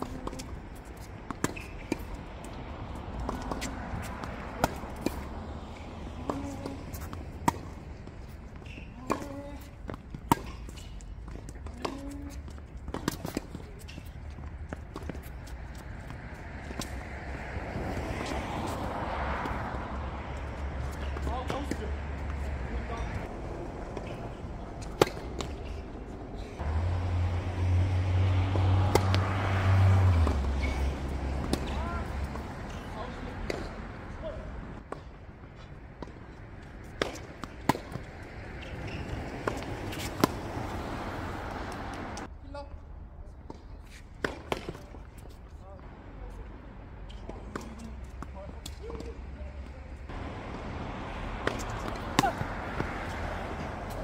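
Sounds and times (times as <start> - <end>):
racket striking tennis ball: 0.0 - 2.6, 3.2 - 14.1, 20.9 - 26.0, 27.8 - 33.8, 36.8 - 42.3, 44.2 - 44.9, 50.1 - 54.0
ball bounces: 28.4 - 32.5, 51.3 - 54.0.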